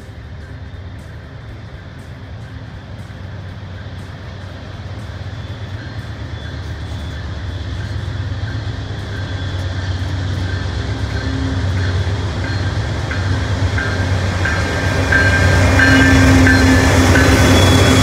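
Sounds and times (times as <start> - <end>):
locomotive engine rumble: 0.0 - 18.0.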